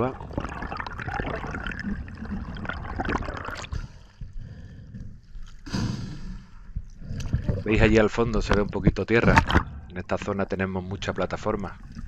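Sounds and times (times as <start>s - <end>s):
water slapping: 0.0s - 4.2s
water rushing and bubbling: 0.0s - 4.4s, 6.6s - 10.3s
burst of water or breath: 5.6s - 6.7s.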